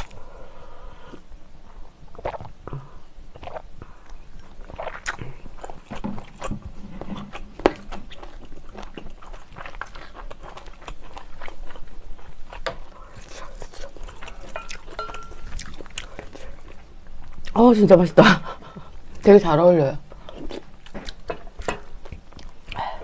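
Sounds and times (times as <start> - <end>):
wet chewing and smacking: 2.1 - 17.6, 20.2 - 23.0.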